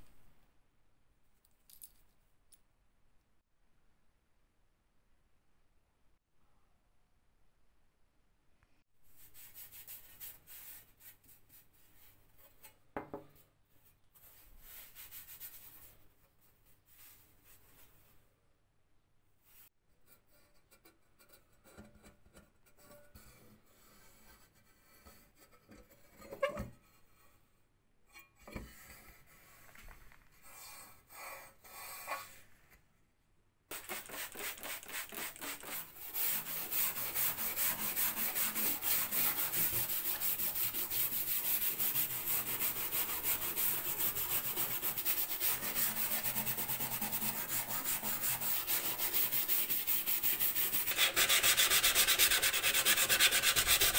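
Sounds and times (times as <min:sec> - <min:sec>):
sandpaper wet-sanding metal: 0:33.7 - 0:53.9.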